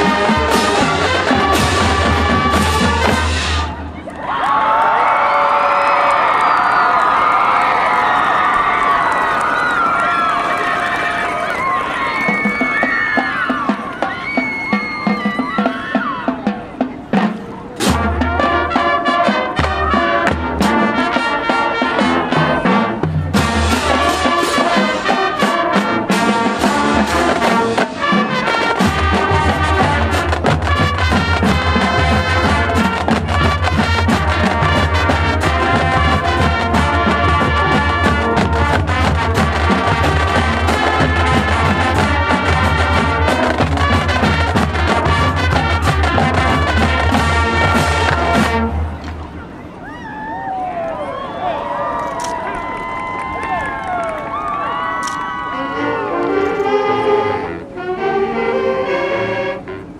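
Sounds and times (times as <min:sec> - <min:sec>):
marching band playing: 0:00.0 - 0:04.1, 0:10.2 - 0:49.8, 0:55.0 - 0:59.9.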